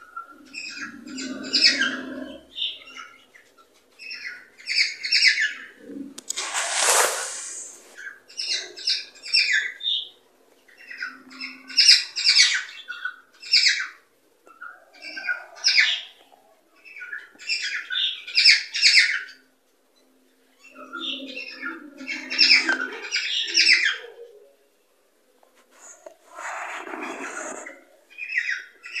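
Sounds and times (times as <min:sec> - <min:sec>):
harsh noisy bird call: 0:06.3 - 0:09.5.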